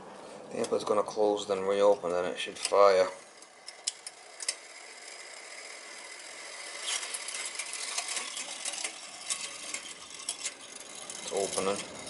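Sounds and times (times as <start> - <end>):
vent damper motor: 0.0 - 12.0
rattle of mechanical ticks: 2.6 - 12.0.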